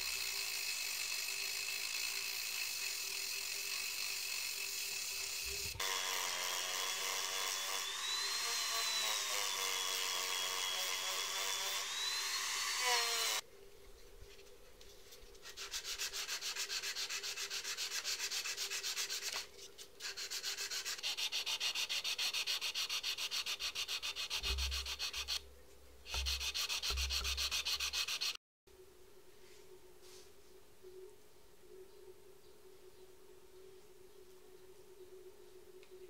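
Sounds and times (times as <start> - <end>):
hand sanding wood: 15.4 - 25.4, 26.1 - 28.4.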